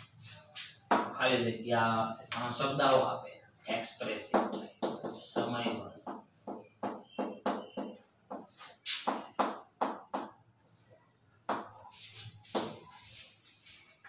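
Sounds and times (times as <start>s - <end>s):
chalk scratching on blackboard: 0.0s - 1.2s, 8.3s - 9.4s, 11.7s - 14.0s.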